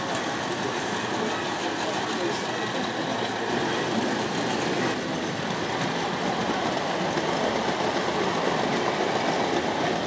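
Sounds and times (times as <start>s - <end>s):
model train wheels on rails: 0.0s - 10.0s.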